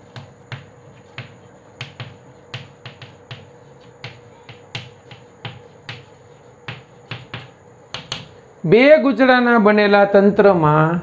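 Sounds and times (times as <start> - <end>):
chalk tapping on chalkboard: 0.0 - 8.4.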